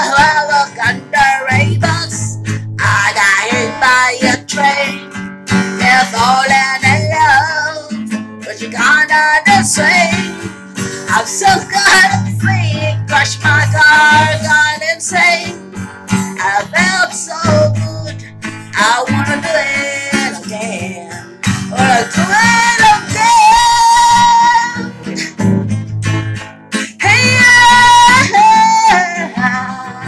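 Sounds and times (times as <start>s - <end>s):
woman singing: 0.0s - 25.4s, 26.8s - 30.0s
strummed acoustic guitar: 0.0s - 30.0s.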